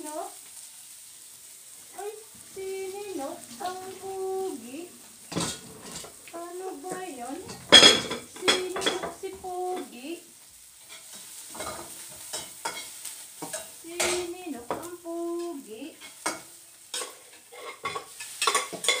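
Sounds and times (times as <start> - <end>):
food sizzling in a pan: 0.0 - 19.0
baby cooing: 1.9 - 9.8.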